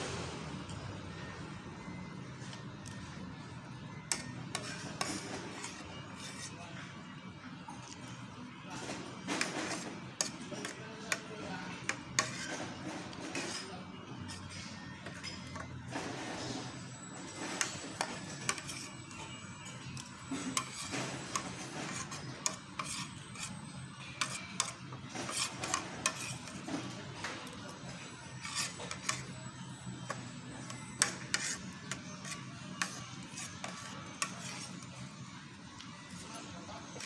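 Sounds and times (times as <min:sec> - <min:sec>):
cutlery scraping on ceramic plate: 0:04.1 - 0:06.6, 0:08.8 - 0:16.6, 0:17.3 - 0:27.6, 0:28.4 - 0:29.4, 0:30.0 - 0:35.1.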